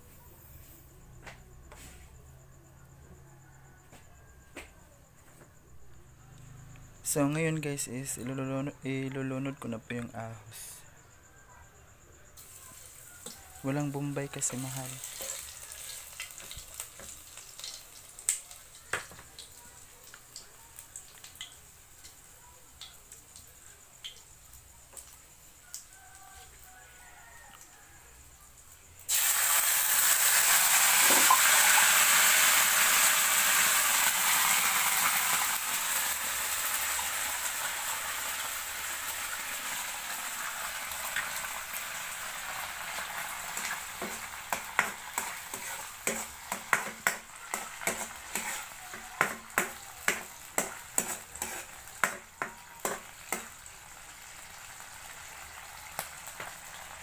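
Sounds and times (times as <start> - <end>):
loud sizzle in wok: 12.3 - 57.0
metal ladle scraping wok: 43.6 - 53.5.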